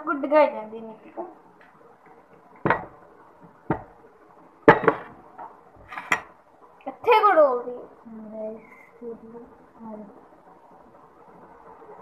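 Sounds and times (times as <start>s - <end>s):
dishware knocks and clinks: 4.7s - 5.1s.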